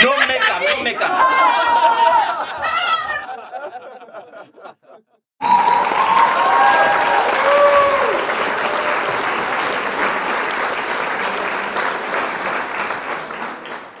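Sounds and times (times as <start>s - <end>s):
crowd applauding: 5.4s - 14.0s.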